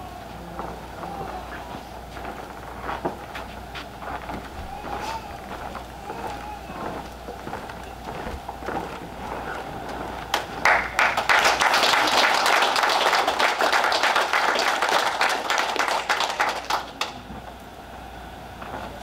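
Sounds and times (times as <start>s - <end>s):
audience applauding: 4.2s - 17.3s.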